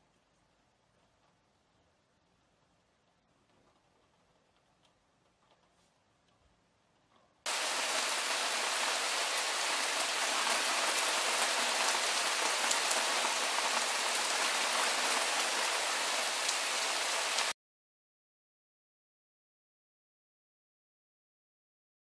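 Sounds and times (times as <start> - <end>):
steady rain falling: 0.0 - 17.6.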